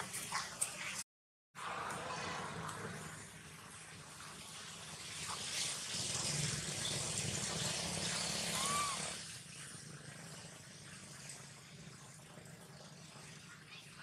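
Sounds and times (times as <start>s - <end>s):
broad rushing noise: 1.6s - 9.2s.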